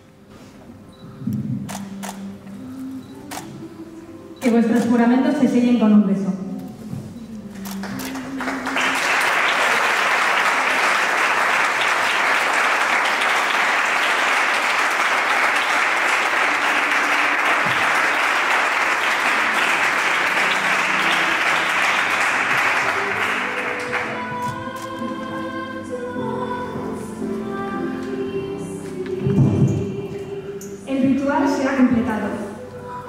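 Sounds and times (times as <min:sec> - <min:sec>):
soft music: 0:00.0 - 0:33.0
crowd applauding: 0:07.6 - 0:25.1.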